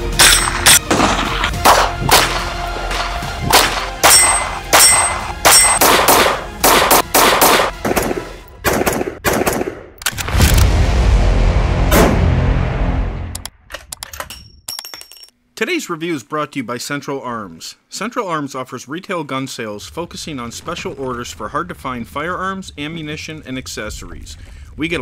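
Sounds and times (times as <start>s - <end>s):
background music: 0.0s - 13.5s
rifle gunshots: 0.2s - 10.6s
loud low rumbling: 10.2s - 13.4s.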